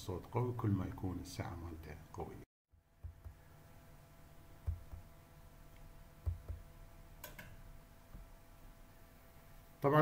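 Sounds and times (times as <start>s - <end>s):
steady low hum: 0.0s - 10.0s
soft low knocks: 4.6s - 5.1s, 6.2s - 6.7s.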